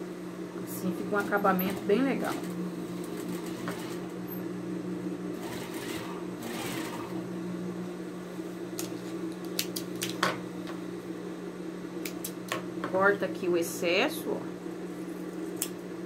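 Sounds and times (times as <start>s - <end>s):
sewing machine motor hum: 1.0s - 4.5s, 5.3s - 7.4s.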